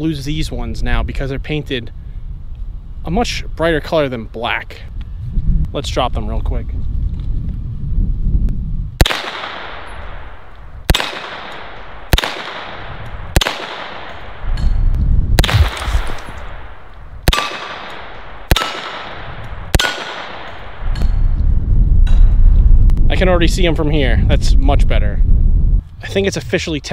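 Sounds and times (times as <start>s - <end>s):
rifle shots echoing: 9.0s - 14.6s, 15.4s - 21.0s.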